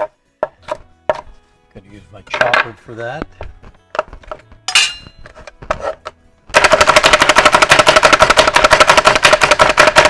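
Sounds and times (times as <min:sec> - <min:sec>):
garlic chopper rattling: 0:06.5 - 0:10.0.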